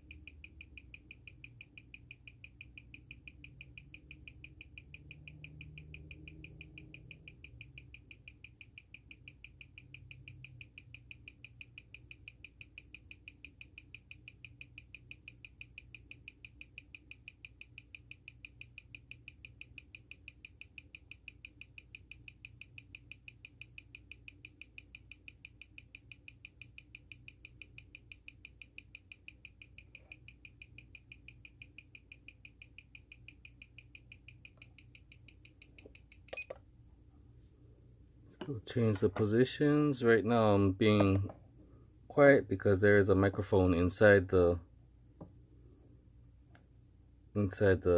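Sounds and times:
watch ticking: 0.0 - 36.5.

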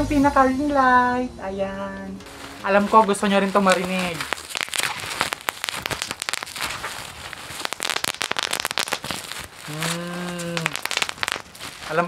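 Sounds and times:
bubble wrap popping: 2.2 - 12.0
man's voice holding a note: 2.6 - 4.2.

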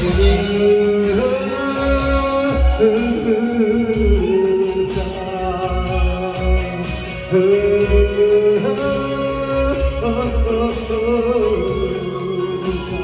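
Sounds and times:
song with singing over deep bass: 0.0 - 13.0.

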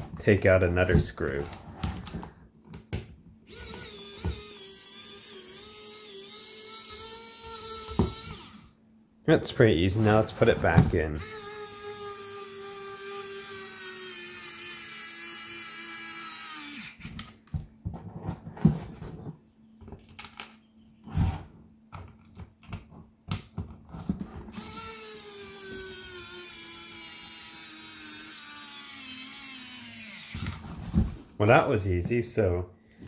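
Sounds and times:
electric screwdriver motor whining: 3.5 - 8.7, 11.2 - 17.2, 24.5 - 30.6.

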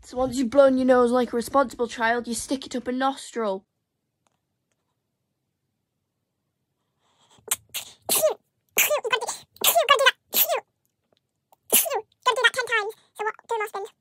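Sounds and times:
girl sneezing and crying out: 7.4 - 10.6, 11.6 - 12.1.

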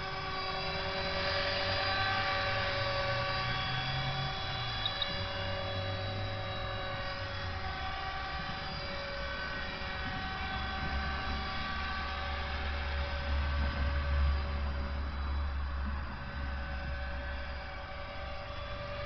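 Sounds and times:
model helicopter rotor whine: 0.0 - 19.0
low rumble: 10.0 - 18.1.

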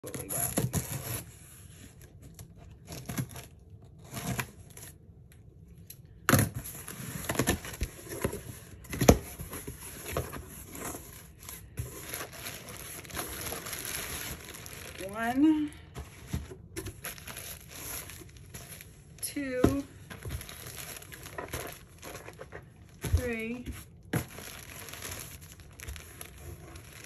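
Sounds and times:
plastic bags rustling: 6.8 - 27.0.

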